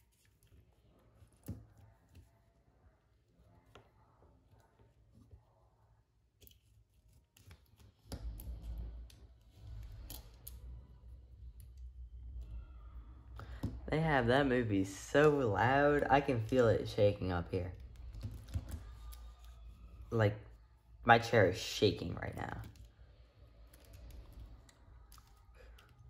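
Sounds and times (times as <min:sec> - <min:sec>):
deep low rumble of movie soundtrack: 0:08.1 - 0:26.0.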